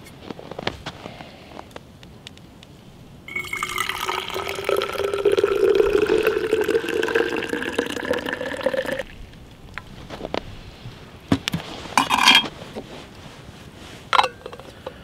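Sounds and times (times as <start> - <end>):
tea pouring into container: 3.3 - 9.4.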